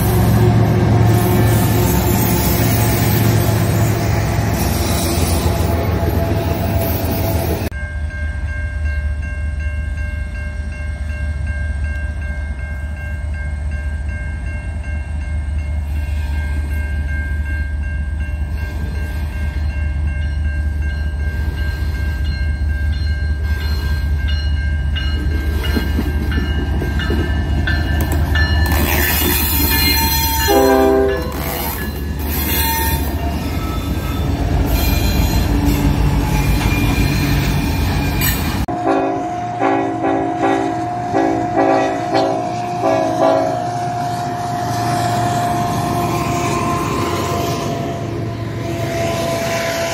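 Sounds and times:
train wheel noise: 0:00.0 - 0:49.9
locomotive air horn: 0:29.0 - 0:31.8, 0:32.4 - 0:37.2, 0:38.7 - 0:44.6.

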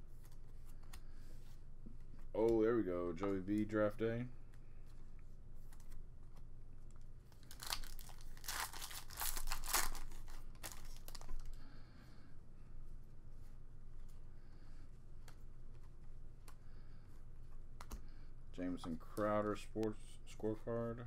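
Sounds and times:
low steady hum: 0:00.0 - 0:21.0
card pack wrapper crinkling and tearing: 0:07.3 - 0:11.6.

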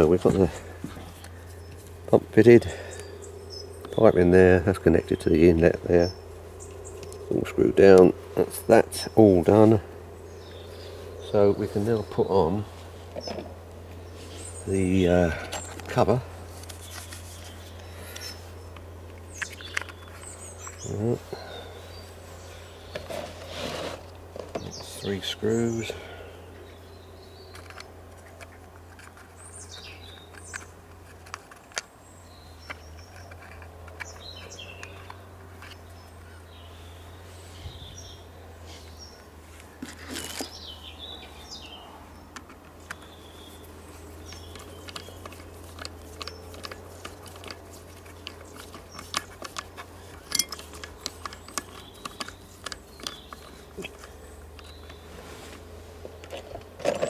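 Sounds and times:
birds chirping: 0:00.0 - 0:57.0
metal tool clicking and tapping: 0:50.2 - 0:53.2.

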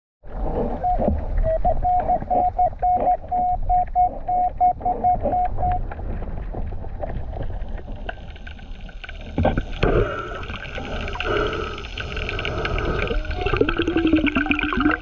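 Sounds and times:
low underwater rumble: 0:00.3 - 0:15.0
metal detector beeps underwater: 0:00.7 - 0:05.8.

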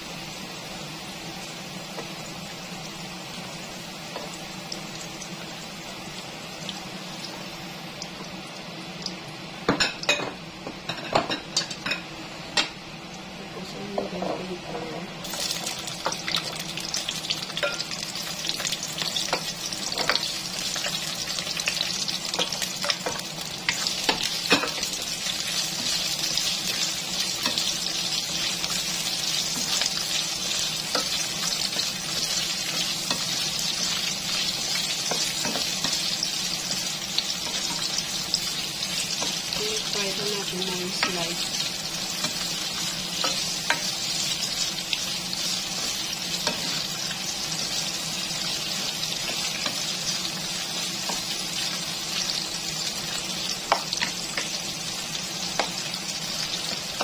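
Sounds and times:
peppers sizzling in oil: 0:00.0 - 0:57.0.

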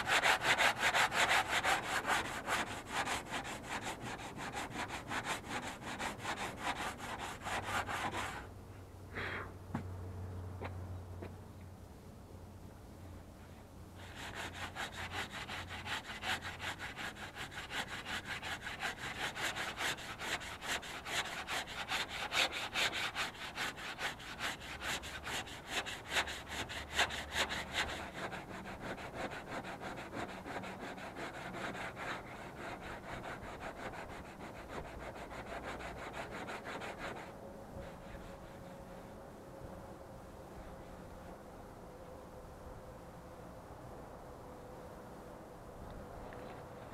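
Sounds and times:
sandpaper rubbing by hand: 0:00.0 - 0:08.5, 0:14.0 - 0:37.3.

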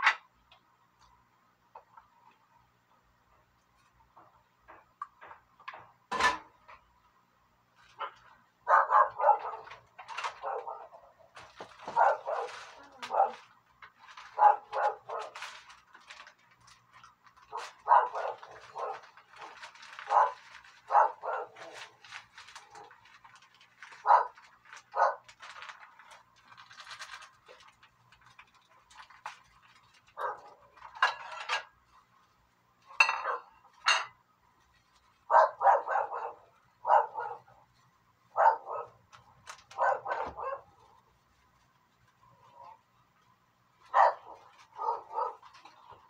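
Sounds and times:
dog barking: 0:08.6 - 0:11.2, 0:11.8 - 0:13.5, 0:14.4 - 0:15.4, 0:17.5 - 0:19.2, 0:20.1 - 0:21.9, 0:24.0 - 0:24.4, 0:25.0 - 0:25.3, 0:30.2 - 0:30.6, 0:33.1 - 0:33.6, 0:35.3 - 0:37.6, 0:38.4 - 0:39.0, 0:39.7 - 0:40.9, 0:43.9 - 0:45.5.

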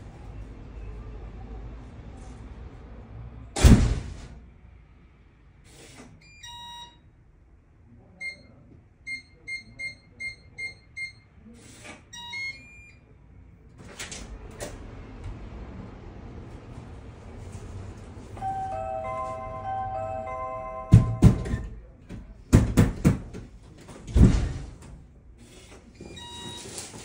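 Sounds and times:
loud thump: 0:03.6 - 0:04.4, 0:24.1 - 0:24.8
keypad beep tune: 0:18.4 - 0:21.7
keypad button beeps: 0:18.4 - 0:21.7.

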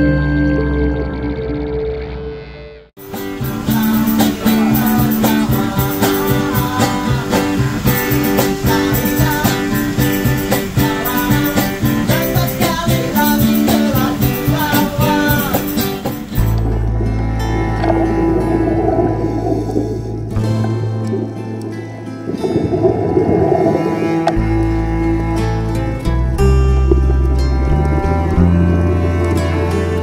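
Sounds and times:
acoustic guitar strumming: 0:00.0 - 0:30.0
cajon beat: 0:03.0 - 0:18.7
man singing into a microphone: 0:03.4 - 0:15.9.

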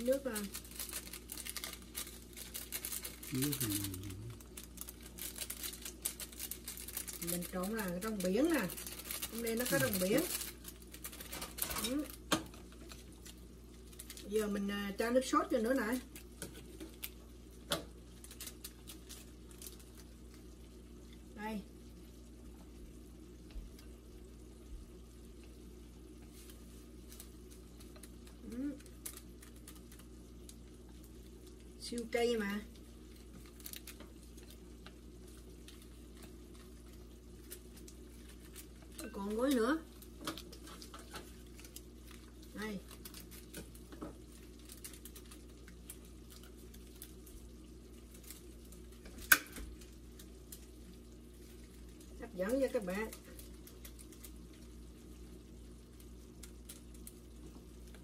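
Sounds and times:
plastic packet rustling: 0:00.0 - 0:14.4, 0:18.1 - 0:20.1, 0:26.3 - 0:31.6, 0:33.1 - 0:49.0, 0:52.8 - 0:54.8
plastic sachet crinkling: 0:00.0 - 0:14.4, 0:18.0 - 0:20.5, 0:26.3 - 0:31.7, 0:32.7 - 0:58.0
steady low hum: 0:00.0 - 0:58.0.

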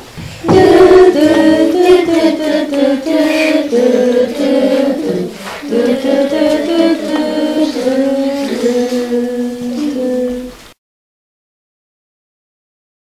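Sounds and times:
children and woman singing: 0:00.0 - 0:10.8.

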